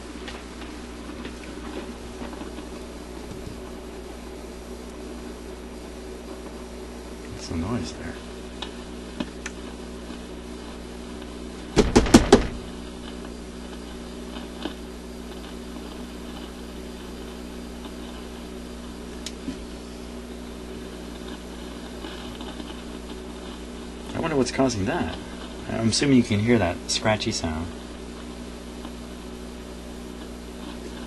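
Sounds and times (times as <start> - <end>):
amplifier humming: 0.0 - 31.0
loud scratchy crackling: 7.4 - 29.4
faint clicks: 19.2 - 19.4.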